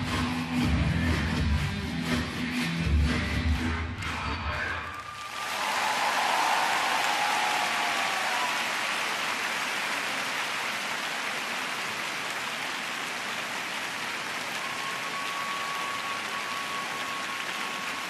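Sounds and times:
crowd applauding: 4.7 - 18.0.

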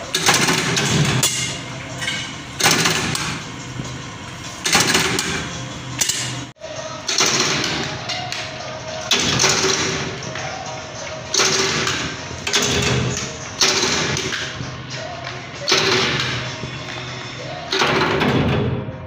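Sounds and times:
press running: 0.0 - 8.1
power press heavy thump: 0.1 - 3.5, 17.7 - 18.9.

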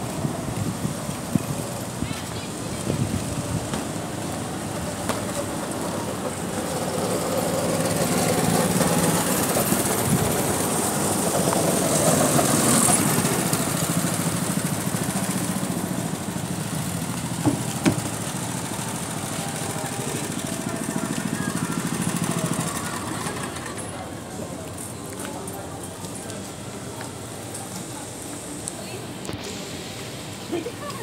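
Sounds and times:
go-kart engines running: 0.0 - 31.0
sharp knocks: 17.4 - 18.2.

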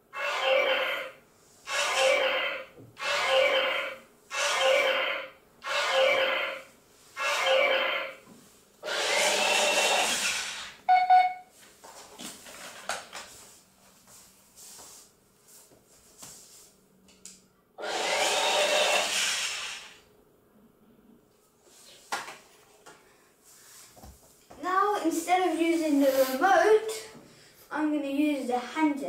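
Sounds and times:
small gear motors whirring: 1.7 - 2.4, 4.3 - 5.0, 8.8 - 10.8, 17.8 - 20.0
short electronic beep: 10.9 - 11.5.

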